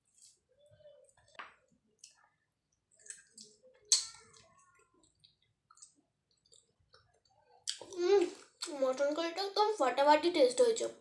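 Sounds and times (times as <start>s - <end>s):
wet clicks and squishes of food: 0.1s - 9.2s
sharp mouth or handling sound: 3.9s - 4.2s.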